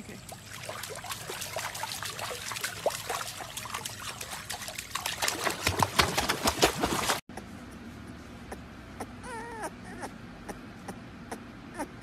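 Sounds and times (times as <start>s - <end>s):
pool water splashing: 0.0s - 7.2s.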